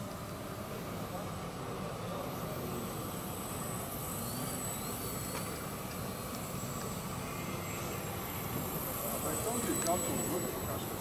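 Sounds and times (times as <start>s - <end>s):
model airplane motor humming: 0.0s - 11.0s
ventilation fans rushing: 0.0s - 11.0s.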